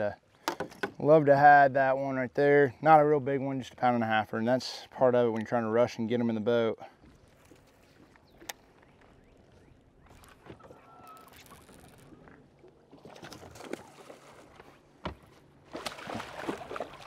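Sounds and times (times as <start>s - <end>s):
water splashing: 7.1s - 17.0s.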